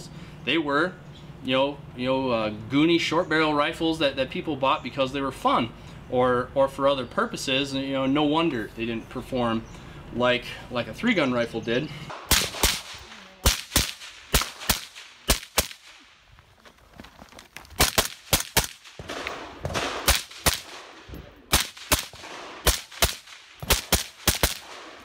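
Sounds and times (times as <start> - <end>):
rifle shots: 12.1 - 16.1, 17.8 - 25.0.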